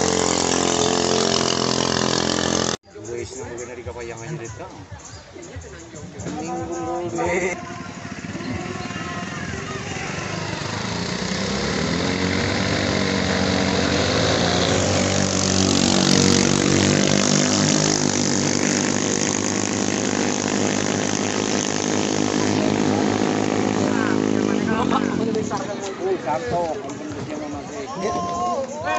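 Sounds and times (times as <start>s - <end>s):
boat engine whine: 0.0s - 2.8s, 7.5s - 25.3s.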